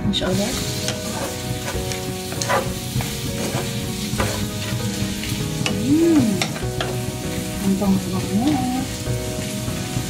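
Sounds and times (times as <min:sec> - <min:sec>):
shrimp sizzling in a frying pan: 0:00.0 - 0:10.0
utensil scraping against pan: 0:00.6 - 0:05.0.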